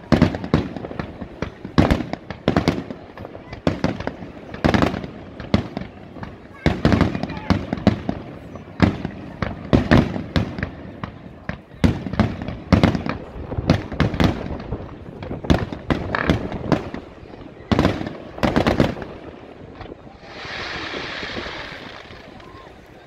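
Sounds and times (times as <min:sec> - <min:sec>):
fireworks bangs: 0:00.0 - 0:23.0
steady hiss: 0:20.0 - 0:23.0
crackling shell bursts: 0:20.2 - 0:23.0.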